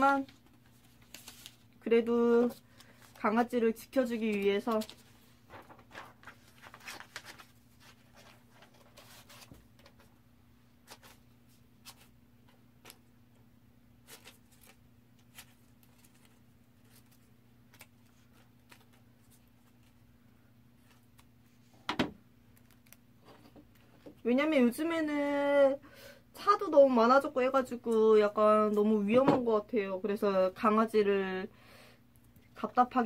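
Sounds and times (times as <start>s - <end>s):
paper rustling: 0.2s - 1.7s, 4.0s - 10.1s, 14.0s - 20.1s.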